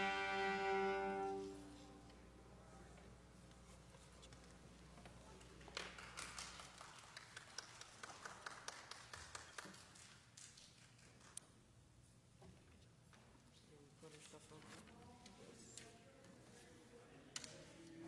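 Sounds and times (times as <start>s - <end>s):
strings and organ chord: 0.0s - 2.0s.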